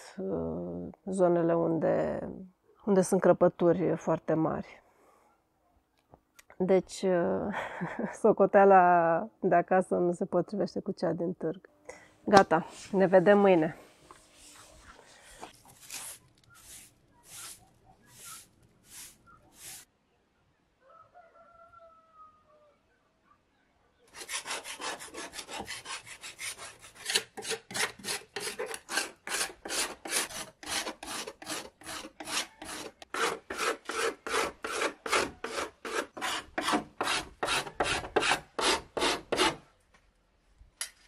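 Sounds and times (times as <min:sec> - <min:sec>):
faint rooster crow: 0:20.7 - 0:23.1
rasping rub on wood: 0:24.2 - 0:39.6.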